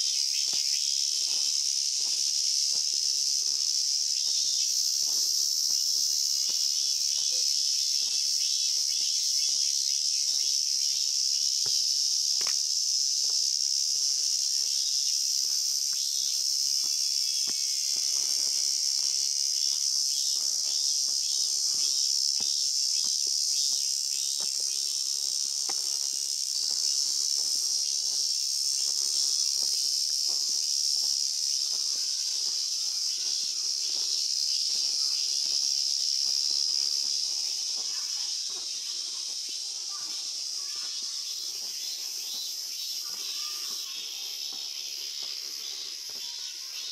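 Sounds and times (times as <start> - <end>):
cicadas droning: 0.0 - 46.9
faint footsteps on stone steps: 0.1 - 46.9.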